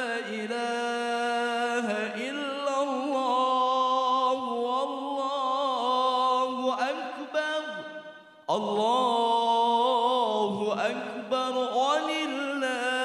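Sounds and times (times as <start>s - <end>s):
man chanting a prayer: 0.0s - 7.9s, 8.5s - 13.0s.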